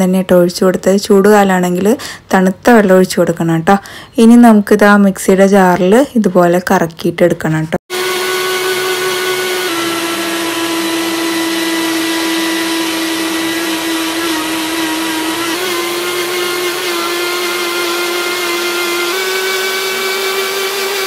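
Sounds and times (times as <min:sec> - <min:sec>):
mixer grinder motor whining: 0:07.9 - 0:21.0.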